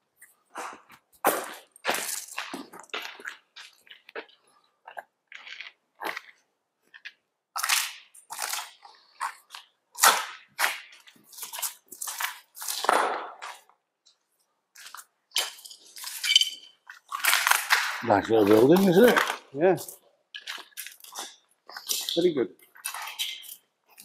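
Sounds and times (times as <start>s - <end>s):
footsteps crunching over rubble: 0.2s - 9.8s, 16.8s - 24.0s.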